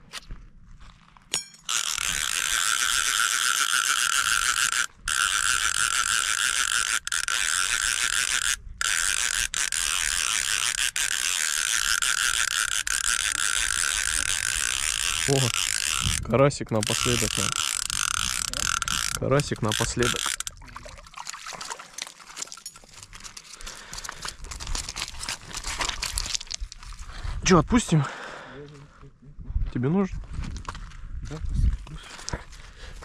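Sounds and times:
fishing reel ratchet clicking: 1.4s - 20.6s.

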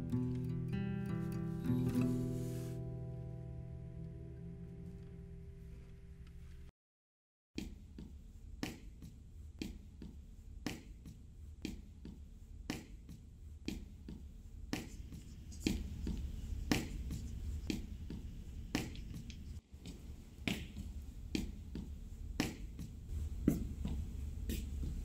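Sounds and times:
low steady hum: 7.8s - 25.0s.

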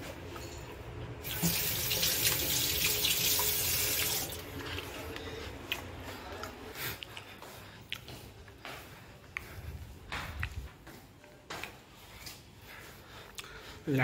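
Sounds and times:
tap water running onto hand: 1.2s - 4.4s.

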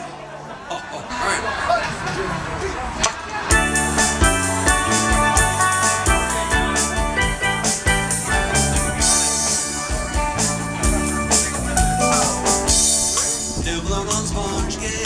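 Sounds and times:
steady cymbal beat: 3.5s - 14.5s
live band playing: 3.5s - 15.0s.

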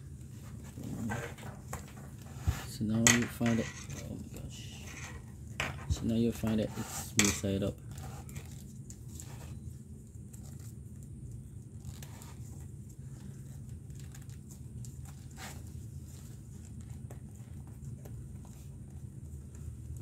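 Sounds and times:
steady low hum: 0.0s - 20.0s
leather lace rustles and clicks: 10.2s - 20.0s.

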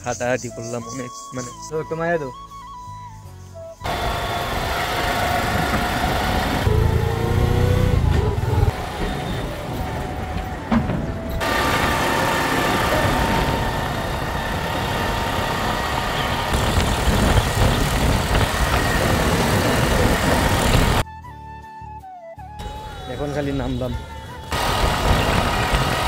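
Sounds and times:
small engine running: 3.8s - 10.0s, 11.4s - 21.0s, 24.4s - 26.0s
road noise: 3.8s - 21.0s, 22.6s - 26.0s.

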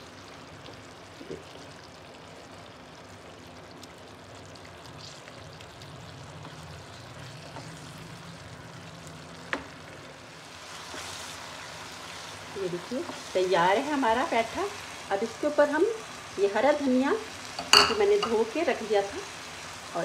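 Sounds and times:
curry sizzling in frying pan: 0.0s - 20.0s
wooden spatula stirring: 10.7s - 12.2s.

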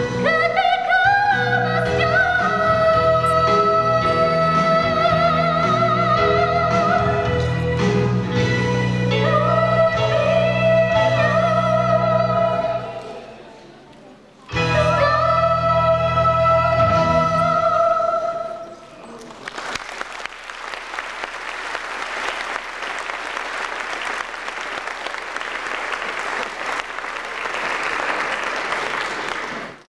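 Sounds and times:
backing music: 0.0s - 13.0s, 14.5s - 18.4s
audience applause: 19.2s - 29.9s.

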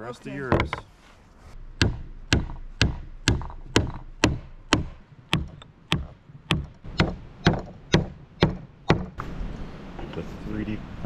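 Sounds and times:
rubber mallet knocking wooden pegs: 0.5s - 0.9s, 1.7s - 9.2s.

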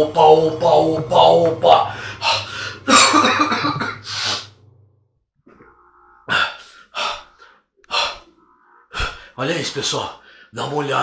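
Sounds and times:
low hum: 0.0s - 9.4s
man breathing and gasping: 1.9s - 2.9s, 5.4s - 9.4s.

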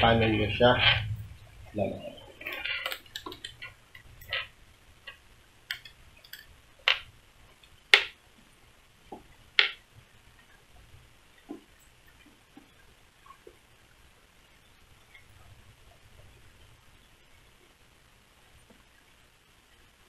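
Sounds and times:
hands clicking and tapping helmet: 2.4s - 4.4s, 5.1s - 7.1s, 7.9s - 8.2s, 9.1s - 9.8s.

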